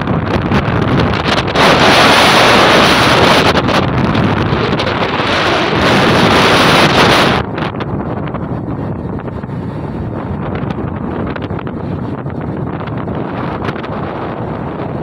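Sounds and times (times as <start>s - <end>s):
wind buffeting microphone: 0.0s - 15.0s
waves rushing: 0.9s - 7.8s.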